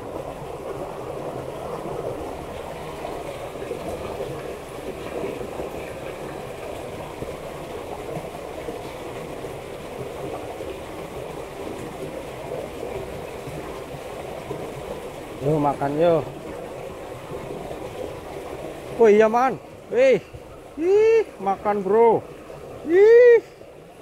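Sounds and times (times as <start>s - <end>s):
water rushing through ditch: 0.0s - 24.0s.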